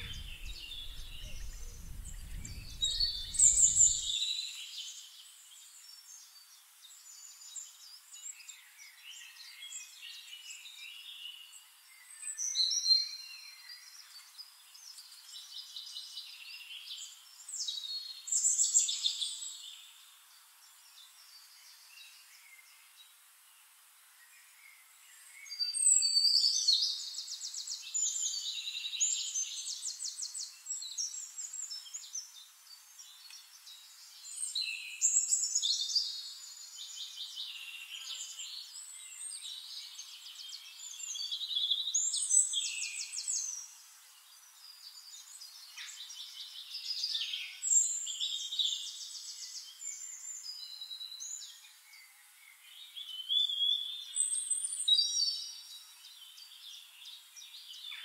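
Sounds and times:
songbird trilling: 0:00.0 - 0:04.1
quiet bird chirping: 0:00.0 - 0:58.0.

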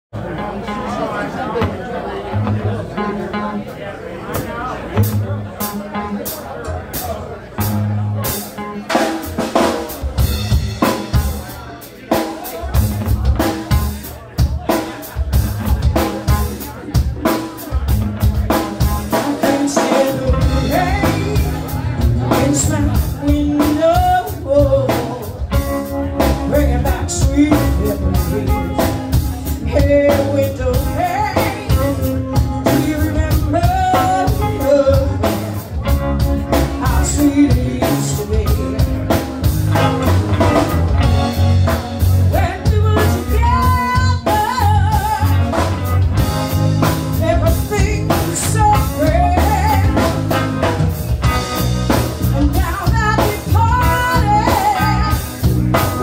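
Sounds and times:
electric guitars: 0:00.2 - 0:56.0
drum kit: 0:04.3 - 0:56.0
woman singing through microphone: 0:19.1 - 0:25.2, 0:26.5 - 0:28.7, 0:29.6 - 0:35.5, 0:36.8 - 0:39.0, 0:42.3 - 0:45.6, 0:47.2 - 0:50.2, 0:52.4 - 0:55.4.

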